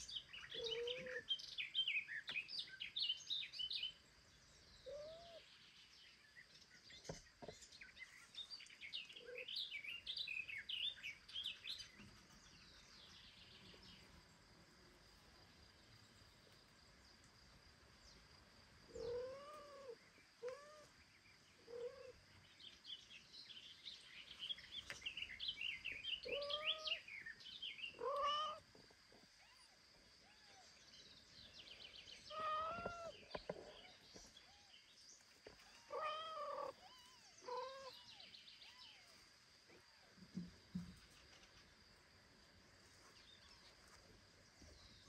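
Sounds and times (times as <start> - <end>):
small birds chirping: 0.0 - 45.0
cat meowing: 26.2 - 27.0, 28.0 - 28.6, 32.3 - 33.2, 35.6 - 38.1.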